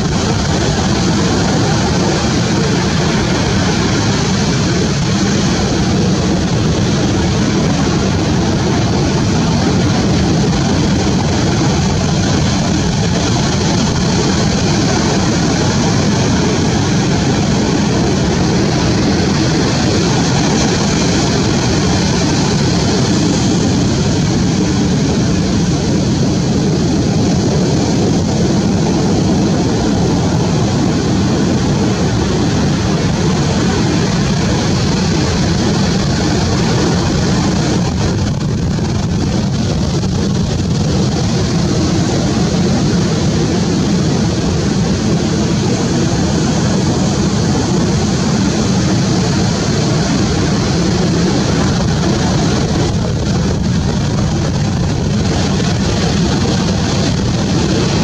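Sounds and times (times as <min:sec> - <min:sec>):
ocean surf breaking: 0:00.0 - 0:25.7.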